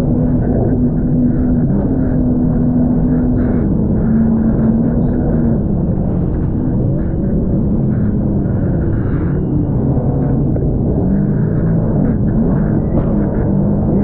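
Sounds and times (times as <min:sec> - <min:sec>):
jet ski engine running: 0:00.0 - 0:13.8.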